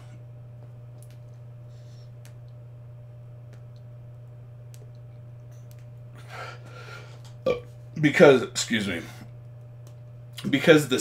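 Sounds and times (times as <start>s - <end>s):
steady low hum: 0.0s - 11.0s
lip smacks: 3.5s - 3.9s
breathy exhale: 6.2s - 7.2s.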